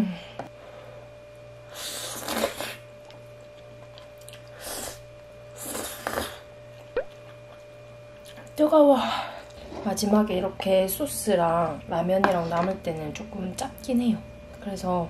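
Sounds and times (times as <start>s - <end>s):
faint steady hum: 0.0s - 15.0s
person blowing on food: 1.6s - 2.9s, 4.5s - 6.5s
slurping noodles: 1.7s - 2.8s, 5.6s - 6.4s.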